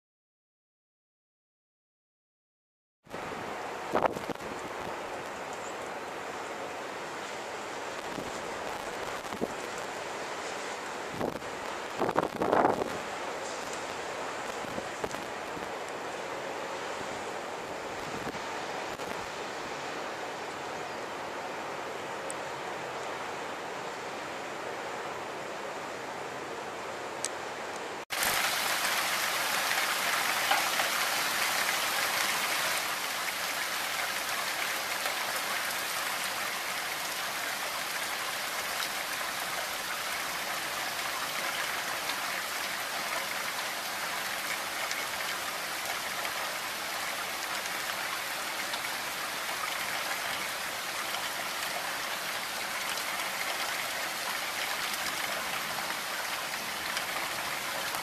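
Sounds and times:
heavy rain falling: 3.7s - 20.2s, 28.1s - 58.0s.

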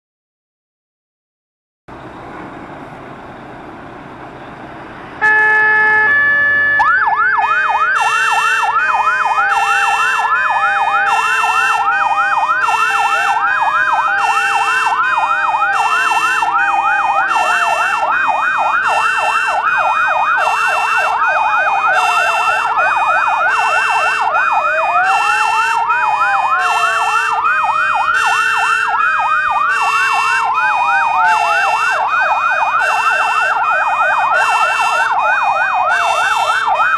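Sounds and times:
fire engine sirens: 1.9s - 36.9s.

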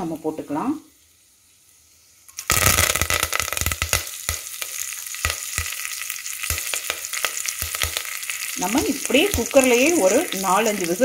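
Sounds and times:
leaves sizzling in hot fat: 0.0s - 11.0s
crackles and pops of spluttering fat: 2.2s - 11.0s.

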